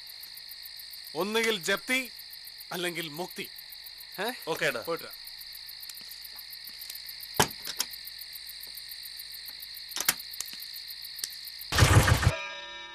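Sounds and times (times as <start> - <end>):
crickets chirring: 0.0 - 12.3
sharp clicks: 9.9 - 10.6.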